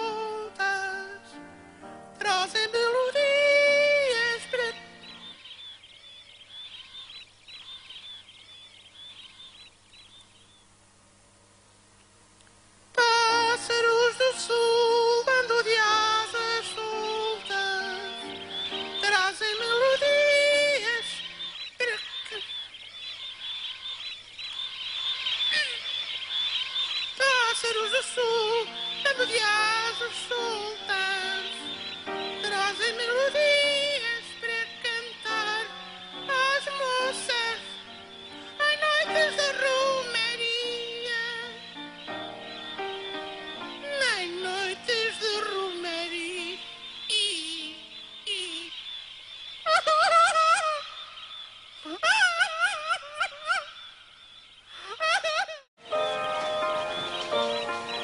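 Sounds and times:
man singing: 0:00.0 - 0:01.5, 0:02.2 - 0:04.9, 0:12.9 - 0:18.4, 0:19.0 - 0:22.4, 0:27.2 - 0:37.8, 0:38.6 - 0:41.6, 0:43.8 - 0:48.8
high chirping whistles: 0:15.9 - 0:58.0
instrumental backing: 0:55.8 - 0:58.0
keyboard chord: 0:55.8 - 0:58.0.

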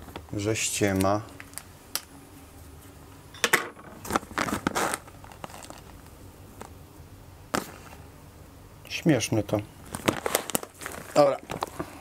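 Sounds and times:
plastic bag crinkling: 0:04.0 - 0:06.1, 0:09.8 - 0:11.9.

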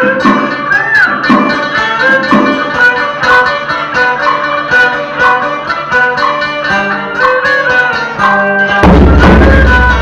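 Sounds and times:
large drum booming: 0:08.8 - 0:10.0.

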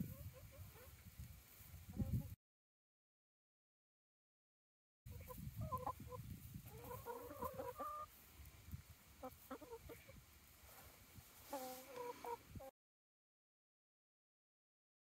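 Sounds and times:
hens clucking: 0:00.0 - 0:01.1, 0:05.1 - 0:10.8, 0:11.4 - 0:12.7.

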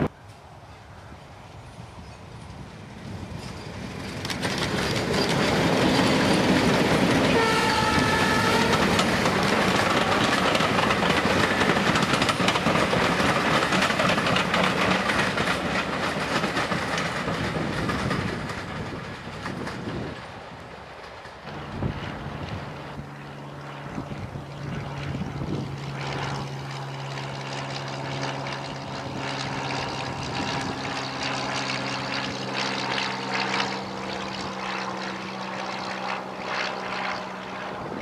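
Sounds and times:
diesel train passing: 0:00.0 - 0:35.5
wheels clattering over rail joints: 0:01.6 - 0:21.7
train horn blast: 0:07.2 - 0:09.3.

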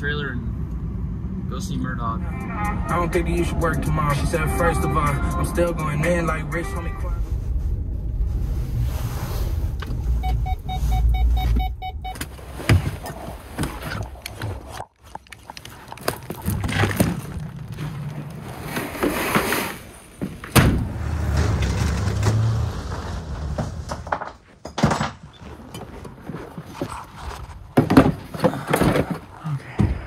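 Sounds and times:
road rumble inside vehicle cab: 0:00.0 - 0:18.6
boxes and gear being loaded: 0:11.4 - 0:20.6, 0:23.0 - 0:29.6.

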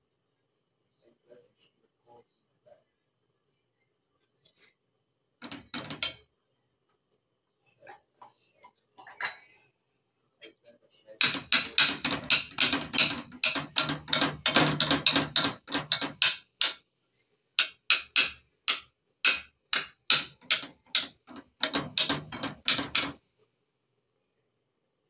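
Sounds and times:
rapid sharp knocks: 0:05.4 - 0:06.1, 0:11.2 - 0:16.8, 0:17.6 - 0:23.2.

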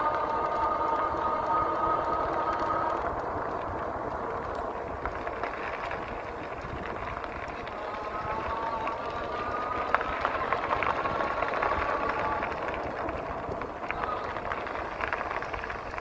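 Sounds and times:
tyre noise on road: 0:00.0 - 0:16.0
wind rumbling on microphone: 0:00.0 - 0:16.0.

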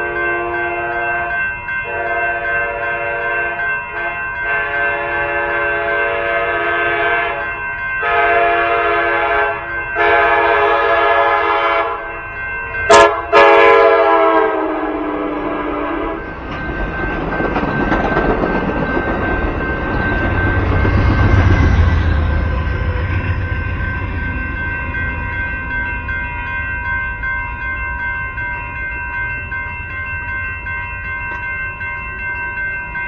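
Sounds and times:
train horn blasts: 0:00.0 - 0:12.1, 0:12.9 - 0:16.3
crossing bells ringing: 0:00.0 - 0:33.0
train rumble and clatter: 0:00.0 - 0:33.0.

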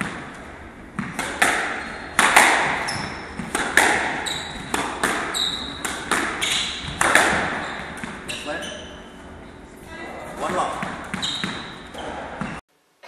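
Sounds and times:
squash ball hits echoing: 0:00.0 - 0:08.3, 0:10.4 - 0:12.6
shoes squeaking on wooden floor: 0:01.6 - 0:03.5, 0:04.1 - 0:09.2, 0:10.4 - 0:12.6.

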